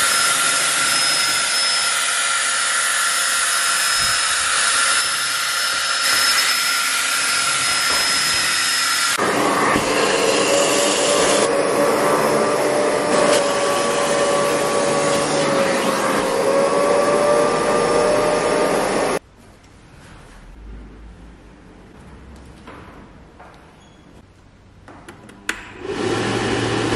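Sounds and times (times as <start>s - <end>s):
drill motor whine: 0.0s - 19.2s
vacuum extractor hum and suction: 5.7s - 19.2s, 25.4s - 26.9s.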